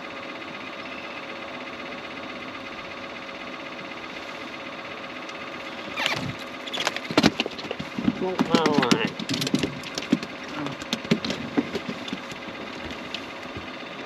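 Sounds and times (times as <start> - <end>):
boat motor humming: 0.0 - 14.0
rustling handling noise: 6.1 - 13.8.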